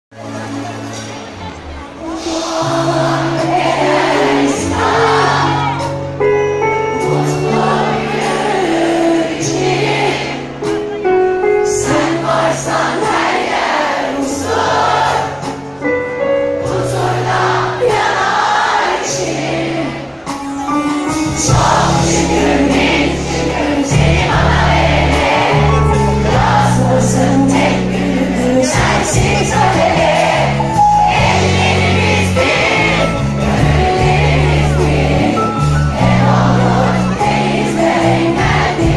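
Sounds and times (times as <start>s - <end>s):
drums: 0.1s - 38.9s
pop band with keyboards and bass: 0.1s - 38.9s
woman singing: 2.0s - 5.8s, 7.0s - 10.4s, 11.6s - 15.0s, 21.3s - 25.8s, 26.4s - 30.5s.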